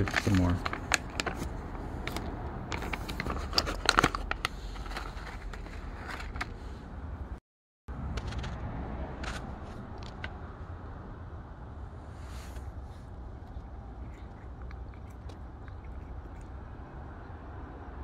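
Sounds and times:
plastic pouch crinkling: 0.0 - 6.5.

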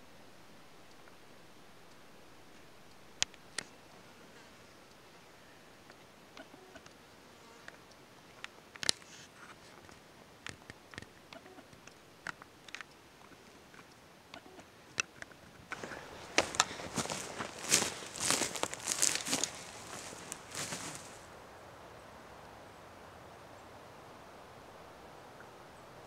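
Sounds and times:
faint clicks and ticks: 0.0 - 21.3
footsteps on forest floor: 15.7 - 21.3.

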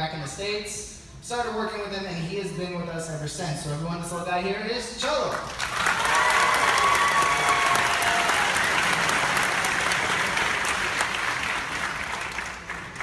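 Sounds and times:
audience applauding: 5.5 - 13.0.

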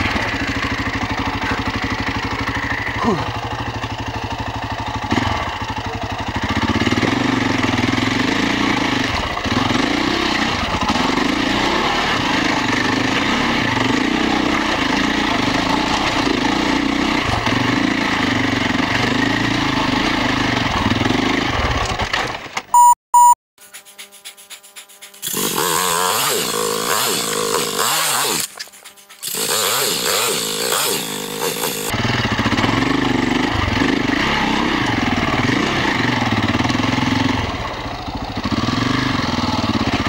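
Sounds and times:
motorcycle engine revving: 0.0 - 23.3, 25.2 - 40.0
high electronic beeps: 22.8 - 23.4.

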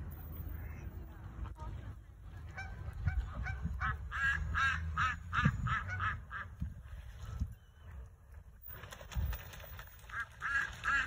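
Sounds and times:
goose honking: 2.5 - 6.5, 10.1 - 11.0.

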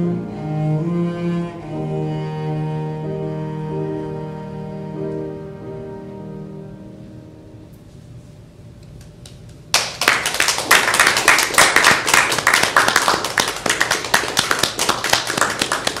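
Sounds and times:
small audience applauding: 9.2 - 16.0.

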